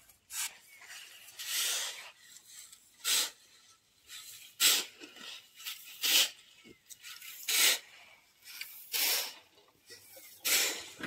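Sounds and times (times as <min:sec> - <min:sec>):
shovel scraping sand: 0:00.1 - 0:09.5, 0:10.2 - 0:11.0.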